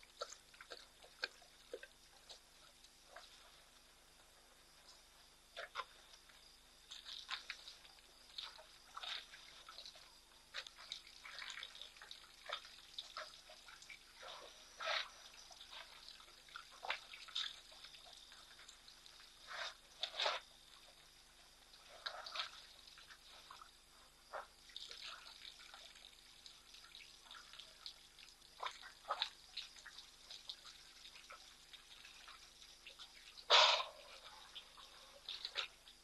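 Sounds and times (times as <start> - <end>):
water splashing and dripping: 0.0 - 36.0.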